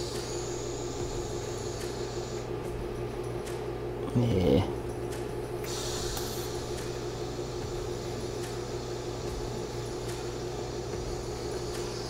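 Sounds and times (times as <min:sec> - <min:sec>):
welder humming: 0:00.0 - 0:12.0.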